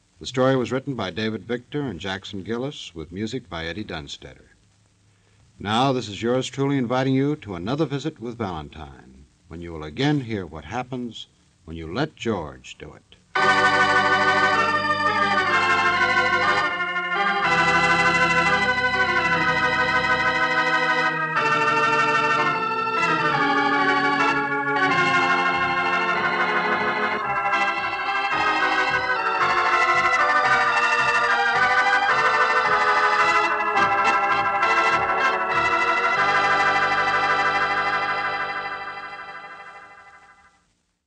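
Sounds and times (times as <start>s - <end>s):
organ chords: 13.3s - 40.6s.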